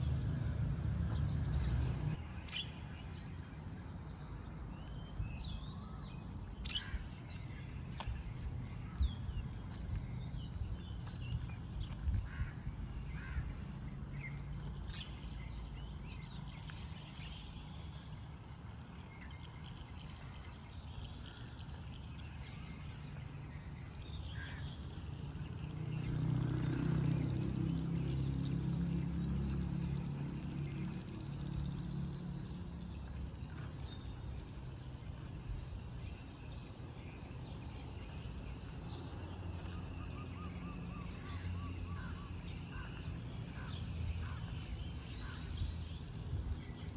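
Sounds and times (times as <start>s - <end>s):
steady low rumble: 0.0s - 17.7s
birds chirping and calling: 0.0s - 26.4s, 30.1s - 46.9s.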